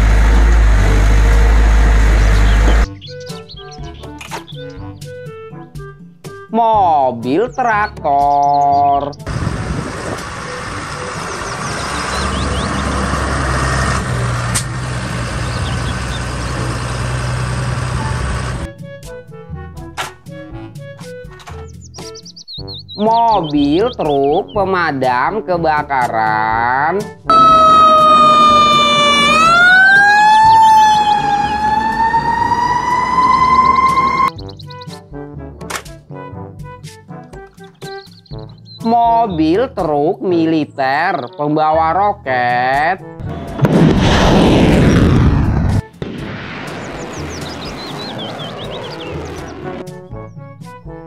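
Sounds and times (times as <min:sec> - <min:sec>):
tractor diesel engine running: 0:00.0 - 0:03.1, 0:09.2 - 0:18.7, 0:27.3 - 0:34.3
sharp click: 0:04.1 - 0:04.6
fire truck siren wailing: 0:09.3 - 0:18.7, 0:27.3 - 0:34.4.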